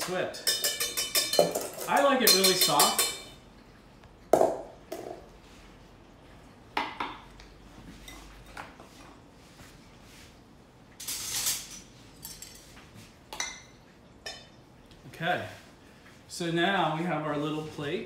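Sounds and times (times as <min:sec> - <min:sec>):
utensils and dishes clinking: 0:00.0 - 0:03.4, 0:11.0 - 0:12.8.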